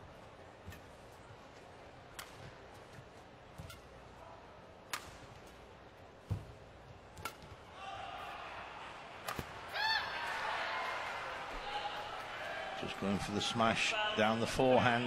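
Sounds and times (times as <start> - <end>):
background noise: 0.0 - 15.0
rackets striking shuttlecock: 2.1 - 4.0, 4.9 - 5.6, 7.1 - 7.6, 9.2 - 9.6.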